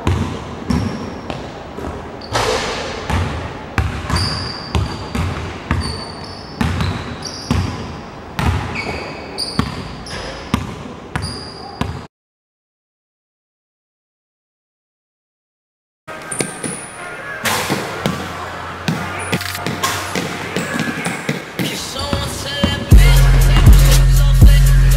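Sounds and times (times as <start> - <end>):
basketball bouncing on wooden floor: 0.0 - 1.9, 3.1 - 12.1
sneaker squeaks: 0.0 - 12.1, 16.1 - 22.9.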